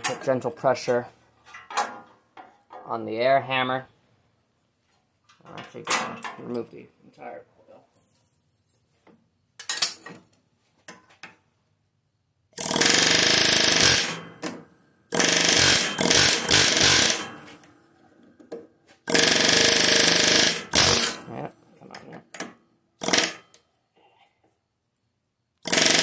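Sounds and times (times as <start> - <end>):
pneumatic air hammer bursts: 12.6 - 17.6, 19.0 - 21.3, 23.0 - 23.5, 25.6 - 26.0.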